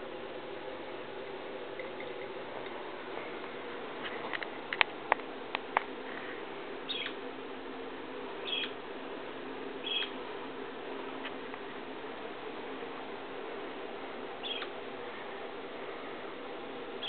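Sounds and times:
faint steady hum: 0.0s - 17.0s
parakeet chirping: 6.9s - 7.2s, 8.4s - 8.8s, 9.8s - 10.2s, 14.4s - 14.7s.

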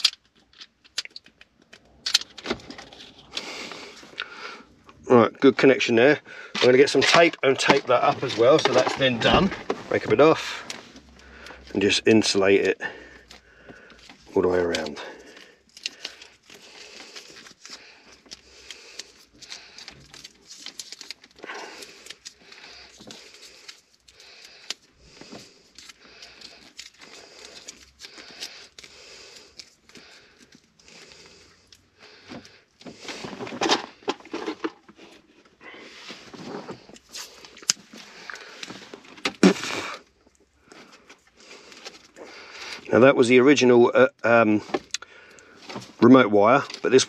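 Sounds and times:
insulating tape peeling and crackling: 0.0s - 4.3s, 6.6s - 42.9s.

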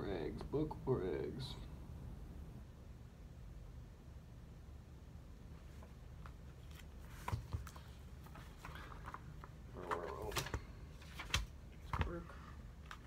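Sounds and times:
steady low hum: 0.0s - 13.0s
book cover and pages knocking: 7.1s - 9.2s.

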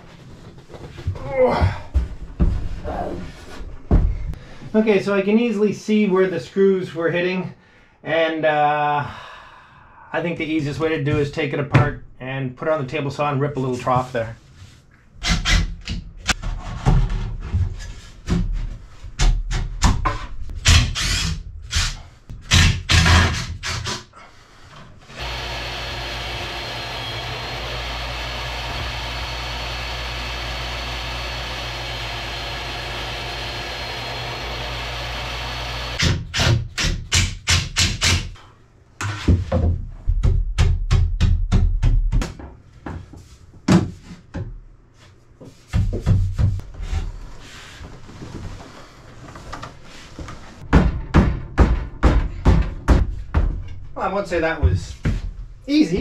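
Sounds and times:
table saw ripping wood: 20.6s - 24.1s, 25.1s - 36.6s.

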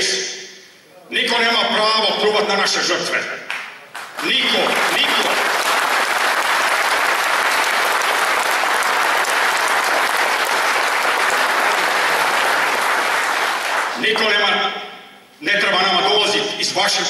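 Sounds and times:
audience applauding: 3.9s - 14.1s.

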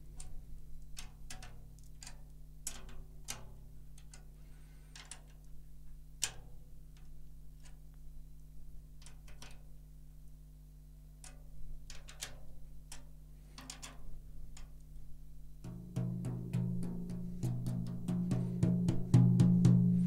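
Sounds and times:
finger taps on drum head: 15.6s - 20.0s.

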